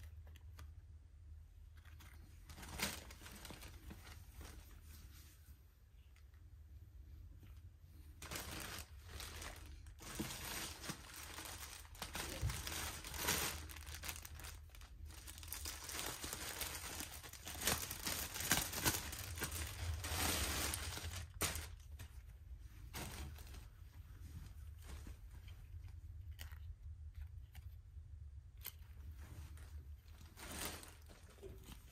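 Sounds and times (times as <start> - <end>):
plastic bag crinkling: 1.8 - 4.7, 8.2 - 23.8, 29.4 - 31.9.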